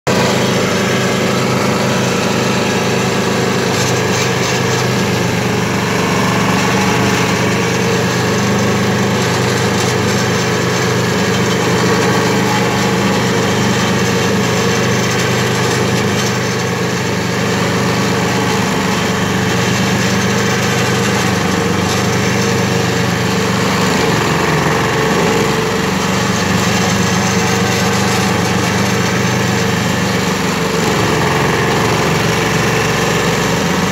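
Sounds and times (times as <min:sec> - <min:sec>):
stump grinder engine at full throttle: 0:00.0 - 0:33.9
cutter wheel grinding wood: 0:00.1 - 0:33.9.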